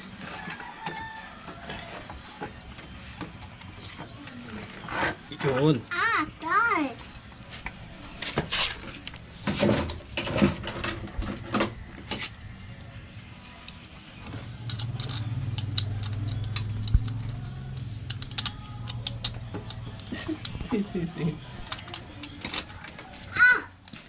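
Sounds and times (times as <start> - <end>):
metal parts clicking and knocking: 13.2 - 24.0.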